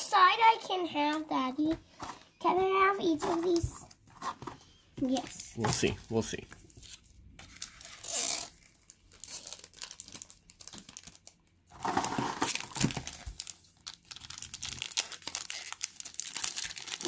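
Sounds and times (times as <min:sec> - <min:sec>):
foil wrappers crinkling: 0:05.6 - 0:17.0.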